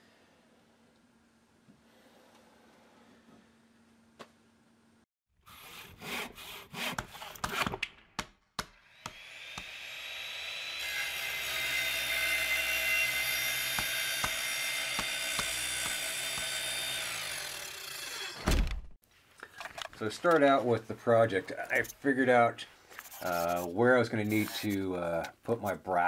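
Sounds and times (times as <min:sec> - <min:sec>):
power tool cutting whine: 0:08.9 - 0:18.5
sharp knocks and scraping: 0:13.7 - 0:16.6.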